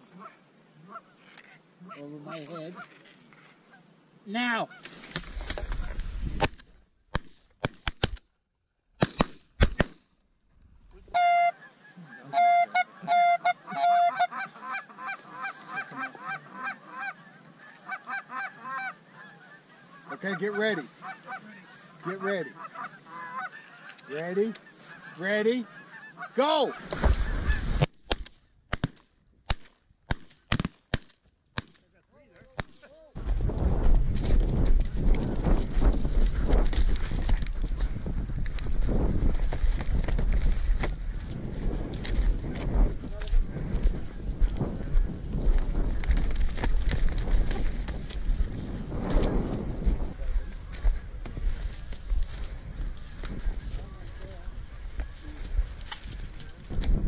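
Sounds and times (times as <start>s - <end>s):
geese honking: 0.0s - 3.9s, 11.1s - 27.9s
shotgun shots: 9.0s - 10.0s
rustling and running footsteps: 26.7s - 28.2s, 32.5s - 57.0s.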